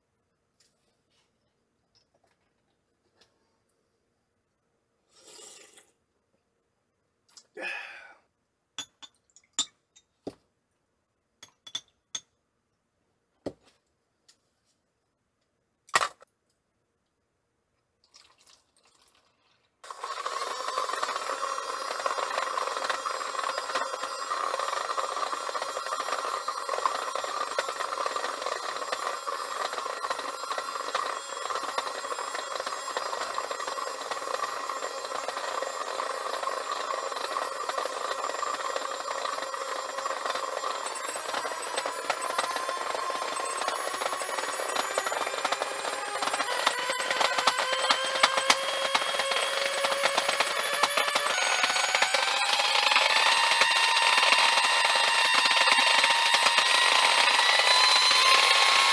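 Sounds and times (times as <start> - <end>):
glass clinking: 8.8 - 10.1, 11.4 - 12.3
small electric motor whirring: 19.8 - 58.9.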